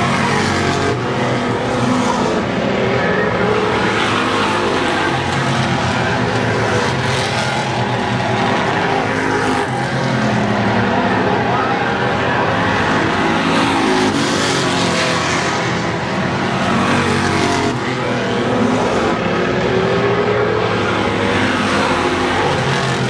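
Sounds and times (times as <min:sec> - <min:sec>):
race car engines passing: 0:00.0 - 0:23.0.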